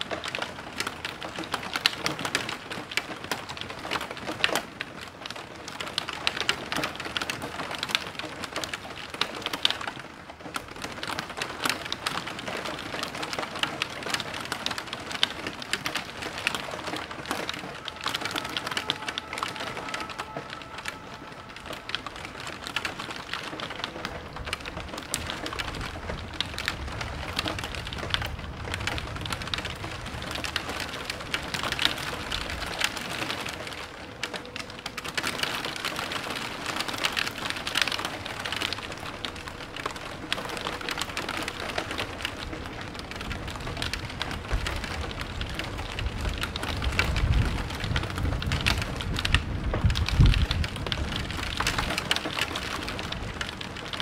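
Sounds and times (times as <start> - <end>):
heavy rain: 0.0 - 54.0
thunder rumble: 0.2 - 54.0.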